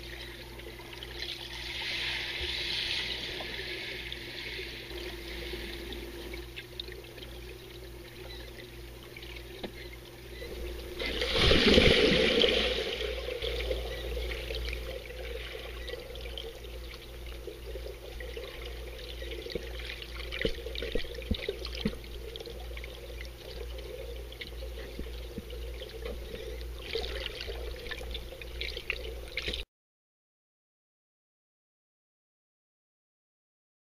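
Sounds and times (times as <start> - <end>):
muffled underwater churning: 0.0 - 29.6
surge of water and bubbles: 10.6 - 29.6.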